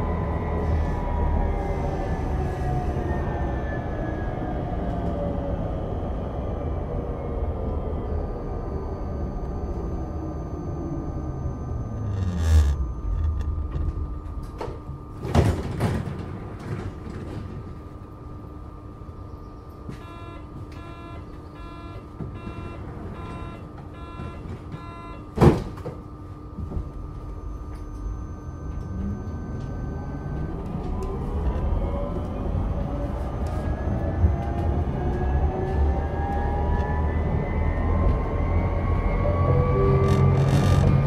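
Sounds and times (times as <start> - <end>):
tram traction drive whining: 0.0 - 15.2
steady hum: 8.0 - 16.6
door-warning beeps: 8.2 - 14.8, 19.9 - 25.7, 27.2 - 33.5.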